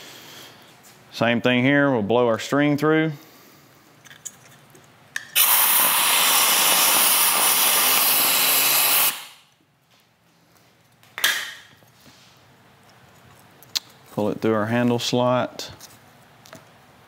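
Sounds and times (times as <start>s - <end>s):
compressed air hissing: 5.4s - 9.4s.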